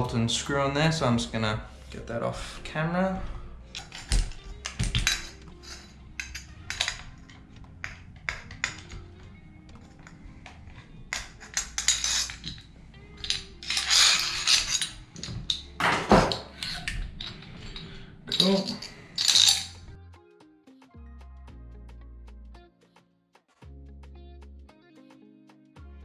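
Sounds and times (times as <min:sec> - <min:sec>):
quiet background music: 0:00.0 - 0:26.0
metal parts clinking and clattering: 0:03.7 - 0:09.1, 0:09.8 - 0:19.9.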